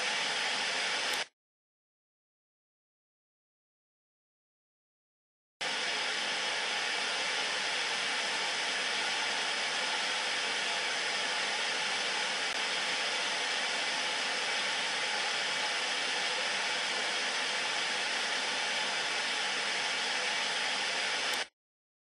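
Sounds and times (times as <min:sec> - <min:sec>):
television static hiss: 0:05.7 - 0:21.5.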